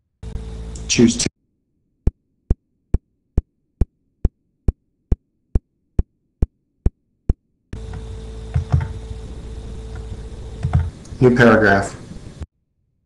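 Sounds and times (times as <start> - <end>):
low room hiss and hum: 0.0 - 1.3, 7.7 - 12.5.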